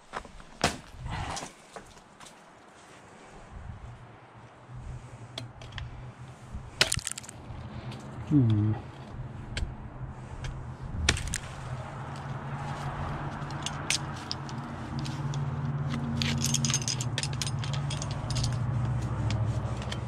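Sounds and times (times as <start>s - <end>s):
metallic carabiner clinks: 13.5s - 18.7s.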